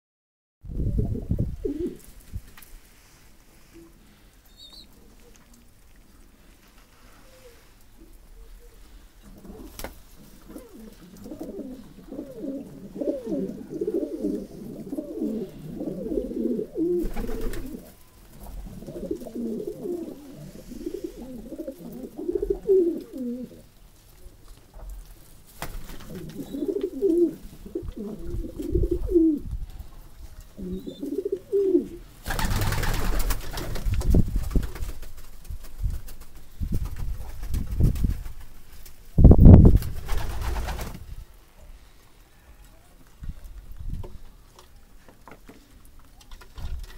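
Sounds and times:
pigeons cooing: 0.8 - 2.1, 7.2 - 23.7, 26.0 - 29.5, 30.5 - 32.9.

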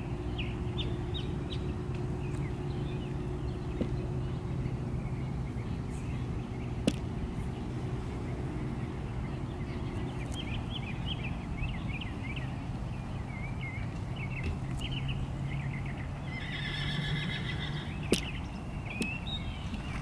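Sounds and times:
horse whinnying: 16.4 - 17.9.

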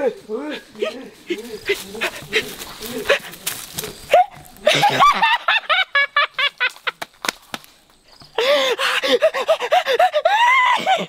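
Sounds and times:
man giggling high-pitched: 4.2 - 6.9
sharp cracks: 6.6 - 7.9.

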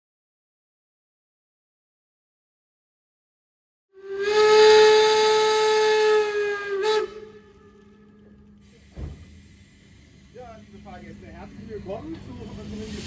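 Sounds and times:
steam whistle blast: 4.0 - 9.0
low thump: 8.9 - 9.4.

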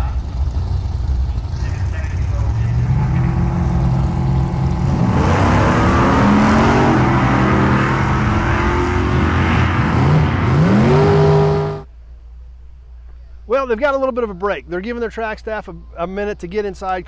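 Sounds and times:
drag racing cars accelerating: 0.0 - 11.9.

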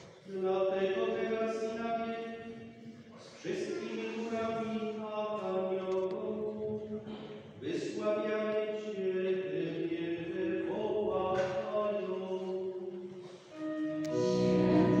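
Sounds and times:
liturgical chant on held notes: 0.3 - 15.0.

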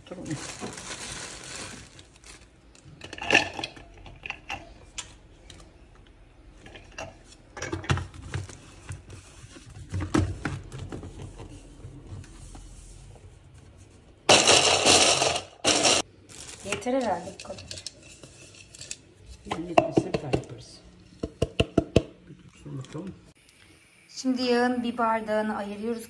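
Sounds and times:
plastic bag rustling: 0.0 - 3.0, 8.0 - 18.9
electric chopper motor: 14.3 - 16.0
walnuts clattering in plastic bowl: 14.3 - 18.0.

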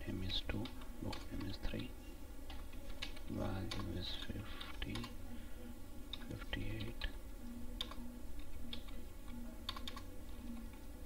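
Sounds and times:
keyboard keystrokes: 7.8 - 10.8.

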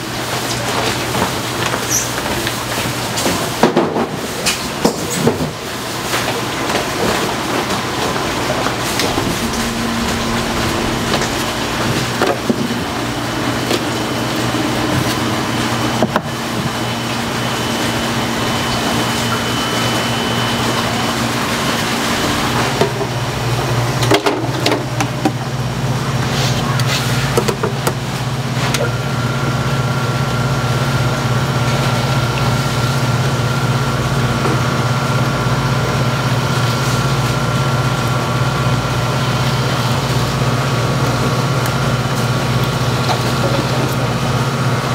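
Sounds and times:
electric machine hum: 8.4 - 13.6.

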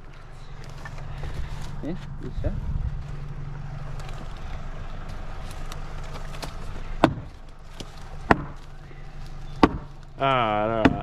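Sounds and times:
low steady hum: 0.0 - 11.0
wedges being hammered into wood: 7.0 - 7.3, 8.2 - 8.6, 9.6 - 9.9, 10.7 - 11.0.

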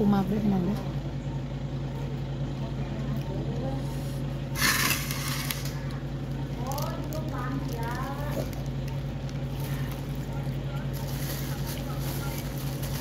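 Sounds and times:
steady low hum: 0.0 - 13.0
faint voices: 5.6 - 13.0.

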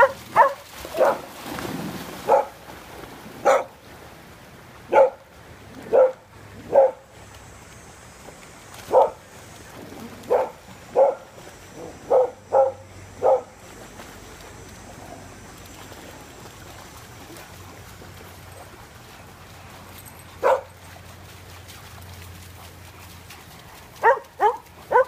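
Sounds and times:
dog barking: 0.0 - 1.3, 2.3 - 2.6, 3.4 - 3.7, 4.9 - 5.2, 5.9 - 7.0, 8.9 - 9.2, 10.3 - 11.3, 12.1 - 13.5, 20.4 - 20.8, 24.0 - 25.0.

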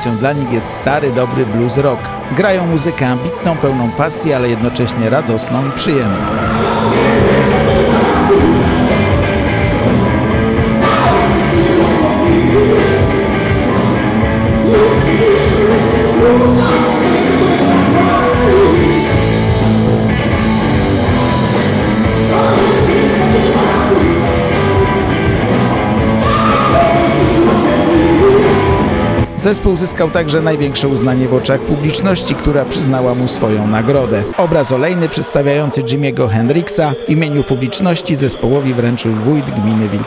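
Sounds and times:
man singing: 0.0 - 9.3, 10.8 - 13.5, 14.6 - 19.2, 22.2 - 25.1, 26.2 - 28.8
bass guitar: 0.0 - 37.0
electric guitar: 6.1 - 34.4.

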